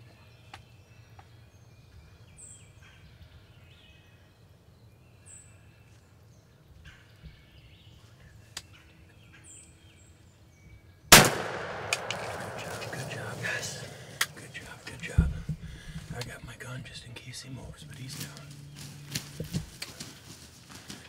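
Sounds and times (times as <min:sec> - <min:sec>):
songbird song: 0:00.0 - 0:21.0
loud shotgun blast: 0:11.1 - 0:14.3.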